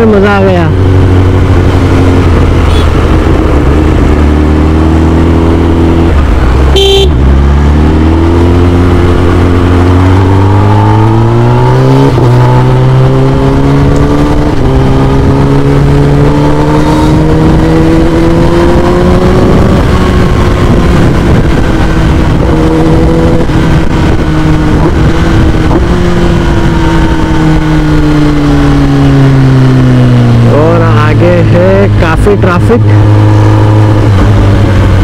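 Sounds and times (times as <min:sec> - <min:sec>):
motorcycle engine revving: 0:00.0 - 0:35.0
vehicle horn beeping: 0:02.6 - 0:03.0, 0:06.7 - 0:07.2, 0:16.8 - 0:17.2.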